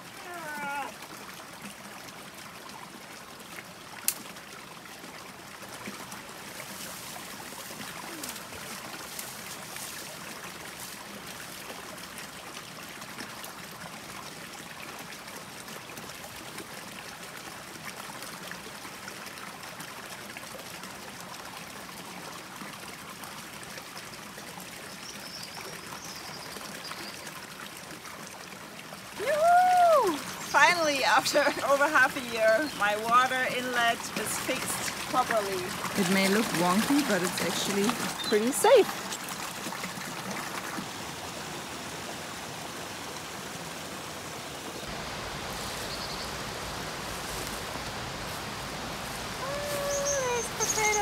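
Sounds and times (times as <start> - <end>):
water rushing into pool: 26.6 - 51.0.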